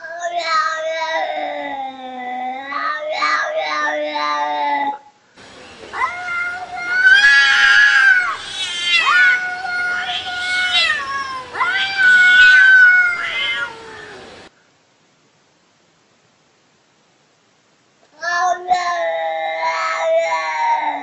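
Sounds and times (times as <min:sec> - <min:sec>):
cats yowling: 0:00.0 - 0:05.0, 0:05.9 - 0:14.5, 0:18.2 - 0:21.0.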